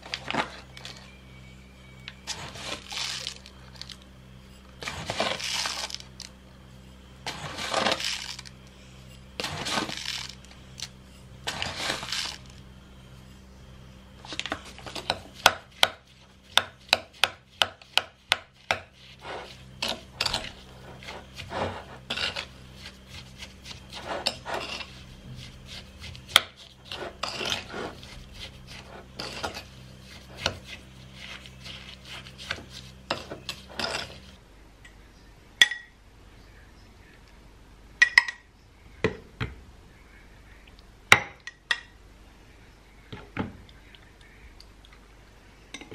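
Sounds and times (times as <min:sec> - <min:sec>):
faint low hum: 0:00.0 - 0:45.9
fork scraping against bowl: 0:02.3 - 0:03.5, 0:04.5 - 0:06.0, 0:07.2 - 0:08.5, 0:09.1 - 0:12.6, 0:18.6 - 0:34.4
sugar poured from paper bag: 0:02.3 - 0:04.0, 0:07.4 - 0:08.5, 0:11.6 - 0:12.6.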